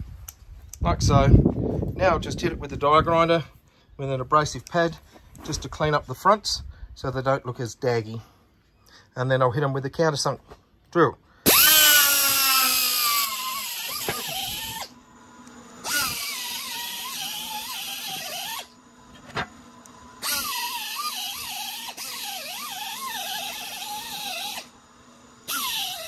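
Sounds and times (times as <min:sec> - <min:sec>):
pneumatic die grinder whining: 0:11.4 - 0:26.0.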